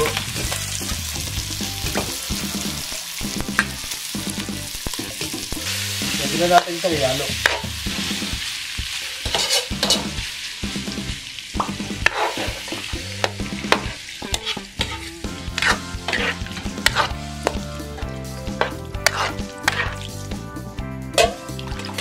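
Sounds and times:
metal ladle scraping wok: 0:09.0 - 0:10.2, 0:12.0 - 0:20.1, 0:21.2 - 0:22.0.

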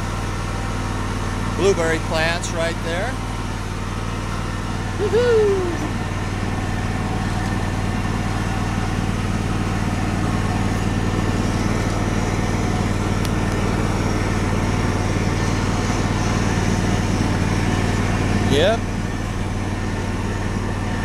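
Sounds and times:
riding lawn mower engine: 0:00.0 - 0:21.0
short voice call: 0:05.0 - 0:06.0.

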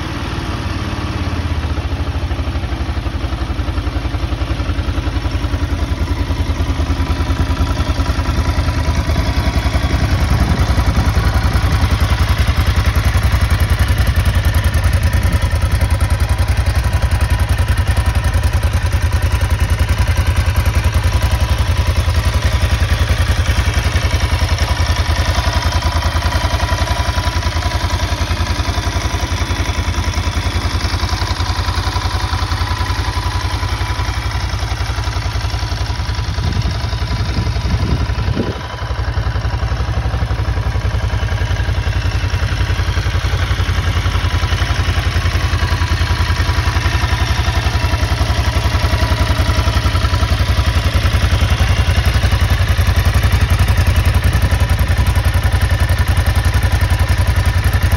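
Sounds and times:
motorcycle engine idling: 0:00.0 - 0:57.9.

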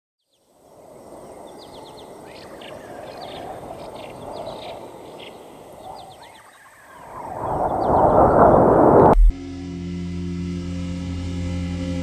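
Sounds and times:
birds chirping: 0:00.2 - 0:09.3
steady low rushing noise: 0:06.8 - 0:09.4.

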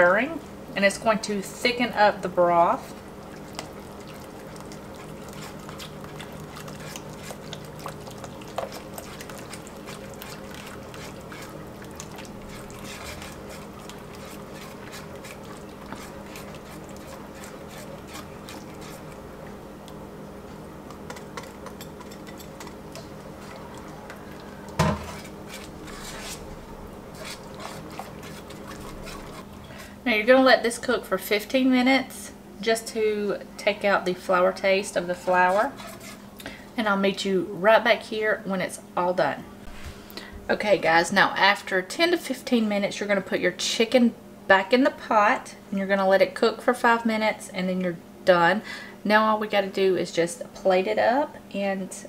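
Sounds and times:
steady low hum: 0:00.0 - 0:52.0
whisk ticking against pot: 0:02.6 - 0:20.0, 0:20.8 - 0:23.6, 0:27.1 - 0:29.5
liquid swishing: 0:02.7 - 0:30.0, 0:35.1 - 0:36.3.

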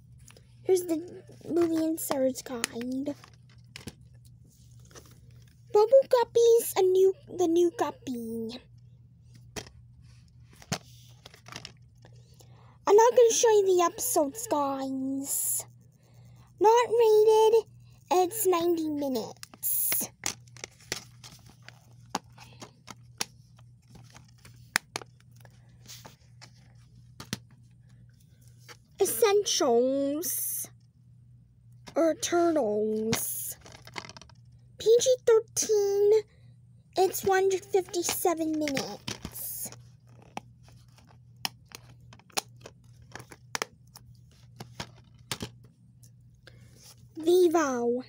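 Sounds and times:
faint low hum: 0:00.0 - 0:48.0
plastic cases clicking and tapping: 0:40.1 - 0:43.7, 0:44.6 - 0:45.6.

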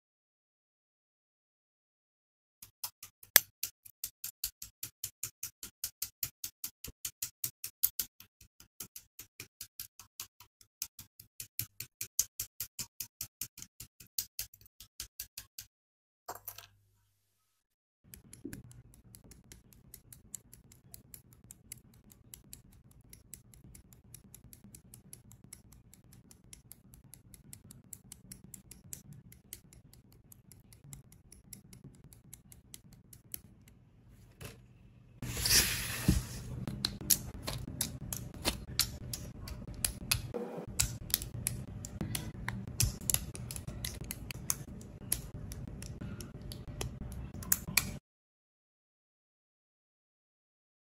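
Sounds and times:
plastic parts clicking together: 0:36.7 - 0:48.0.

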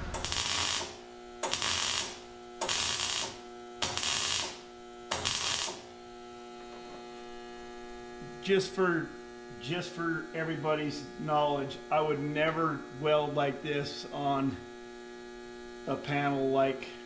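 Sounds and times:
welding bursts: 0:00.0 - 0:06.2
steady electrical hum: 0:00.0 - 0:17.0.

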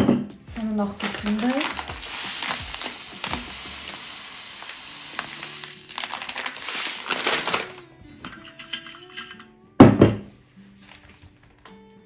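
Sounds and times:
soft background music: 0:00.0 - 0:12.0
sugar pouring into glass jar: 0:01.0 - 0:09.5.

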